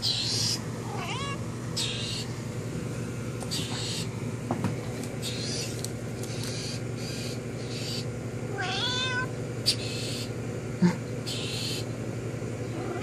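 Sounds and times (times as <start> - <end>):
cat meowing: 0.0 - 2.0, 8.5 - 9.3, 12.7 - 13.0.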